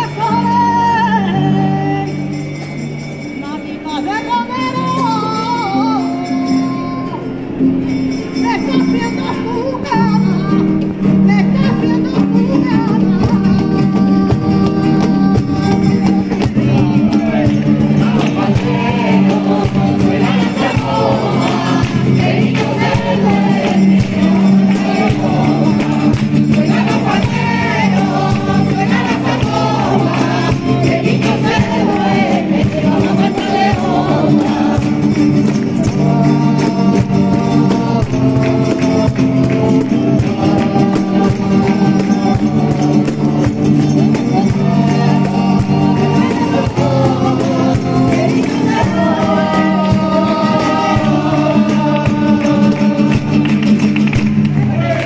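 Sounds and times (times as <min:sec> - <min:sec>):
strummed guitars: 0:00.0 - 0:55.0
mixed choir singing a carol: 0:12.6 - 0:55.0
rhythmic hand clapping: 0:12.9 - 0:55.0.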